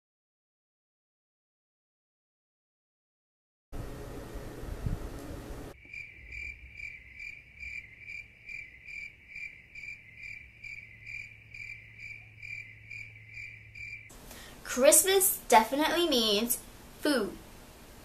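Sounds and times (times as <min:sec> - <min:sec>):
crickets chirping: 0:05.7 - 0:14.2.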